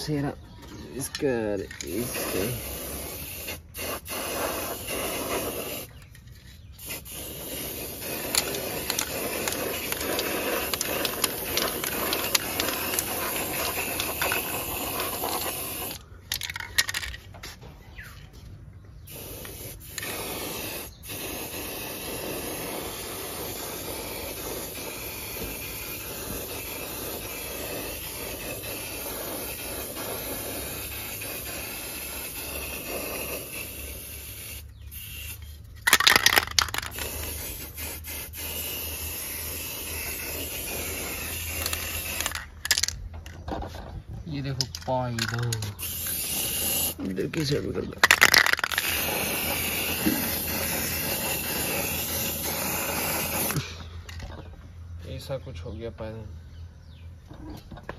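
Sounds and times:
spray paint can hissing: 1.1 - 17.6, 19.0 - 43.4, 44.6 - 54.2.

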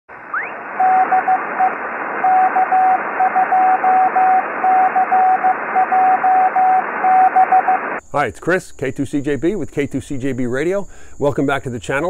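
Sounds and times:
radio static hiss: 0.1 - 8.0
short rising whistle: 0.3 - 7.9
morse code tone: 0.4 - 7.9.

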